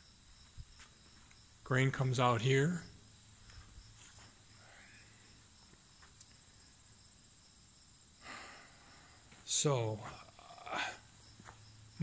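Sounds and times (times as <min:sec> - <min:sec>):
crickets chirping faintly: 0:00.0 - 0:12.0.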